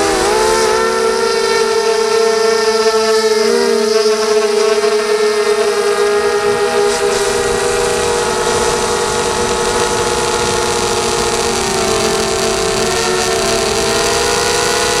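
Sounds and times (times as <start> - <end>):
drone motors whining: 6.8 - 15.0.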